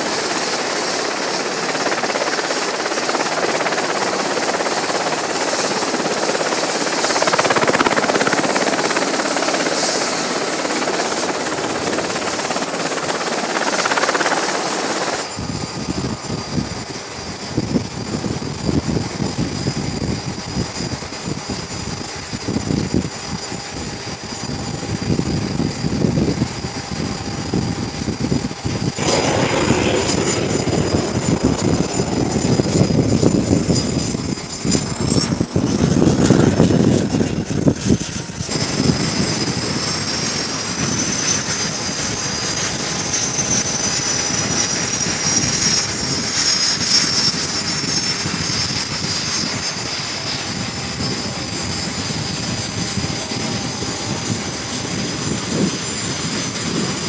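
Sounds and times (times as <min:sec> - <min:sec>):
jet engine turbine whine: 0:00.0 - 0:57.0
rushing rumble: 0:28.6 - 0:39.2.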